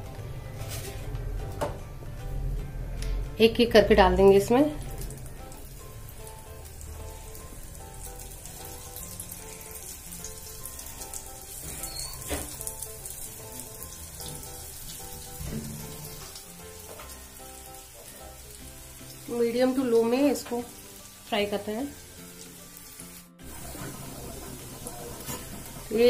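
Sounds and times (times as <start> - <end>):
background music: 0.0 - 26.0
oil sizzling in frying pan: 4.4 - 26.0.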